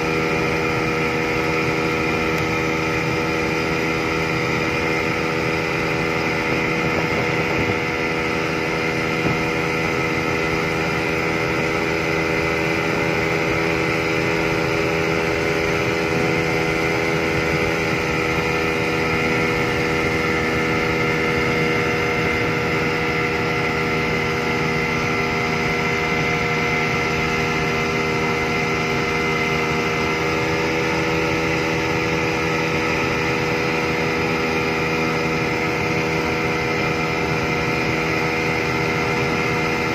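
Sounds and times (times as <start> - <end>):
outboard motor at high throttle: 0.0 - 39.9.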